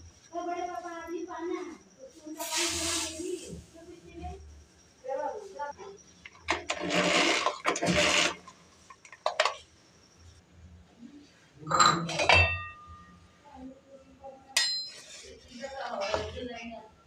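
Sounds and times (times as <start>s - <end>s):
electric hand mixer whirring: 6.7s - 8.4s
metal utensil clinks: 14.6s - 15.1s.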